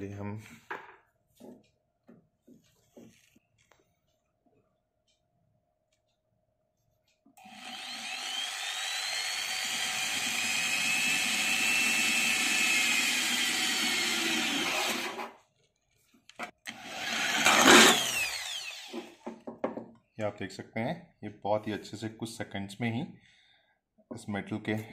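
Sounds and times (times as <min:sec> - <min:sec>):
drill boring through metal: 0:07.4 - 0:15.2, 0:16.7 - 0:19.2
drill clicks: 0:07.4 - 0:15.2, 0:16.6 - 0:19.2.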